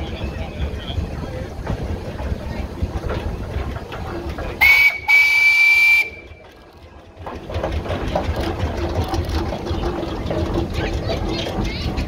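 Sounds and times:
steam engine rhythmic beat: 0:01.6 - 0:12.0
steam whistle: 0:04.6 - 0:06.4.

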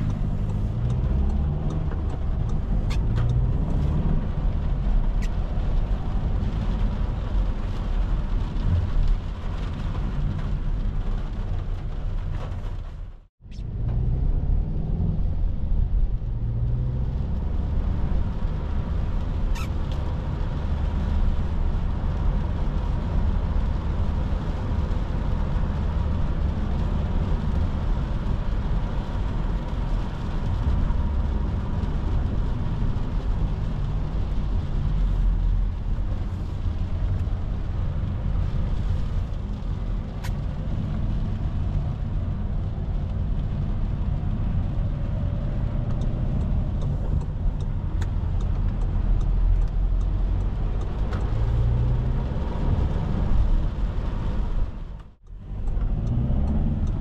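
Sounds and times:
engine and tyres rumbling: 0:00.0 - 0:57.0
rain and water spray hiss: 0:14.9 - 0:57.0.

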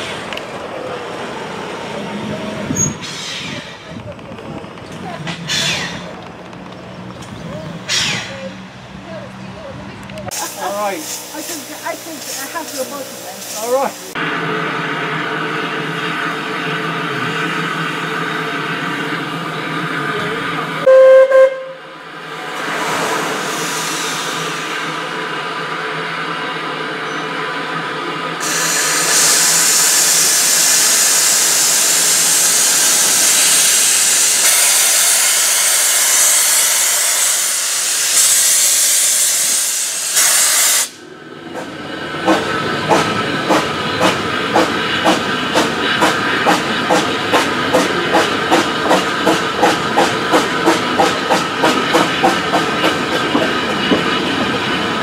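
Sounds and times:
steam hissing loudly: 0:10.3 - 0:18.6, 0:22.4 - 0:25.4, 0:28.4 - 0:54.9
train wheels clicking: 0:28.4 - 0:55.0.

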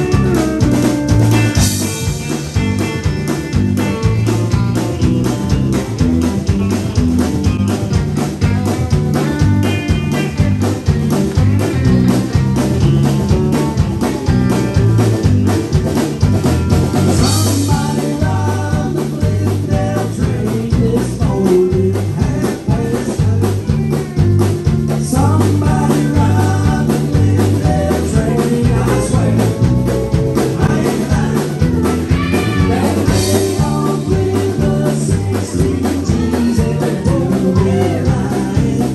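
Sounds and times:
live band playing: 0:00.0 - 0:38.9
person singing: 0:17.1 - 0:24.0, 0:24.9 - 0:38.9.

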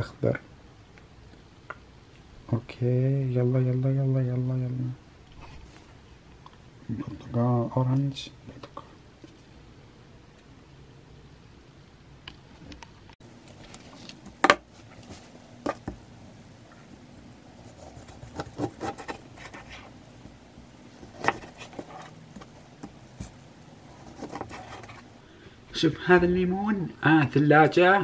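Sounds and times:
handling sounds: 0:17.6 - 0:25.2.

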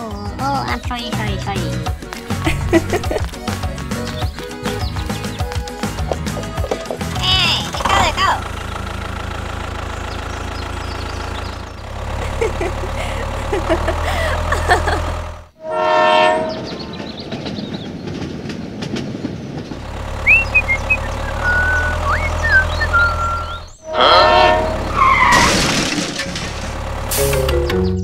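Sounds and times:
toy train rumbling on track: 0:00.4 - 0:15.6, 0:17.0 - 0:27.7
train horn: 0:15.6 - 0:17.0, 0:23.8 - 0:25.0.

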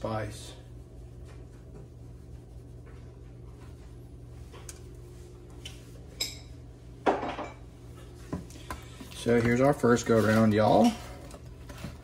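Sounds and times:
faint low hum: 0:00.0 - 0:12.0
kitchenware clinking: 0:06.2 - 0:07.6.

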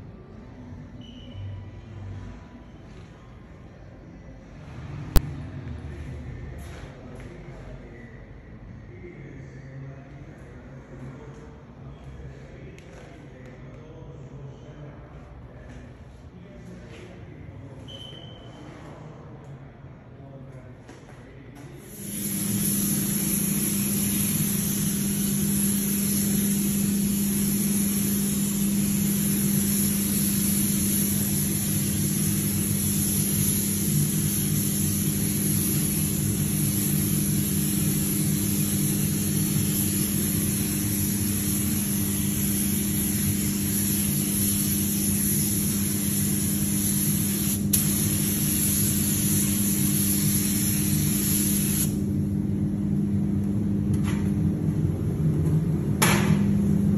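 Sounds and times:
low ventilation hum: 0:00.0 - 0:56.9
spray gun hissing compressed air: 0:21.8 - 0:52.1.

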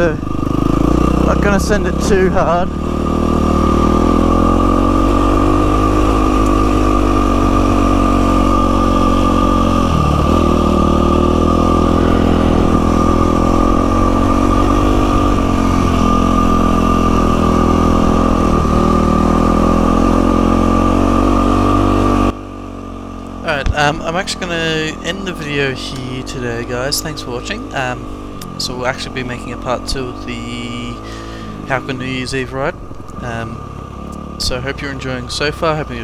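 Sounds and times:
high whine: 0:00.0 - 0:22.4
motorcycle engine running: 0:00.0 - 0:36.0.

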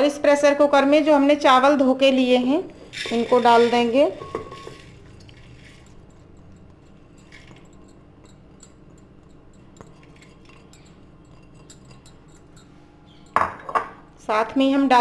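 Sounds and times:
low steady hum: 0:00.0 - 0:15.0
rice grains rustling in a bowl: 0:02.8 - 0:06.0.

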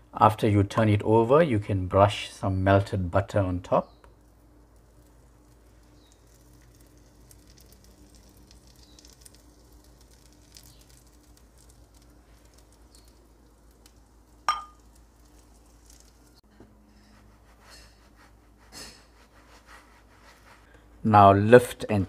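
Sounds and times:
butter brushing: 0:04.1 - 0:21.0
flatbread sizzling in frying pan: 0:04.2 - 0:20.7.

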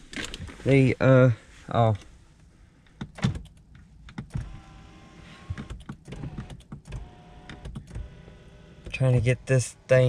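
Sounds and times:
electric seat motor whining: 0:04.3 - 0:08.9
seat switch clicks: 0:05.5 - 0:08.2.

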